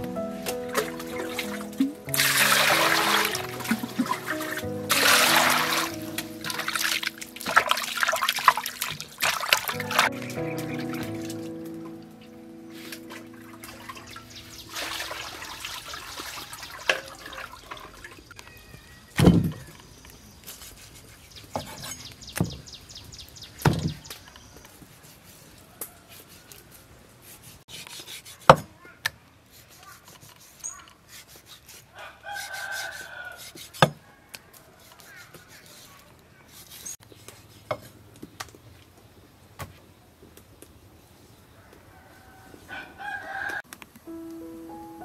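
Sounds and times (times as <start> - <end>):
rooster crowing: 32.0 - 34.9, 41.6 - 43.7.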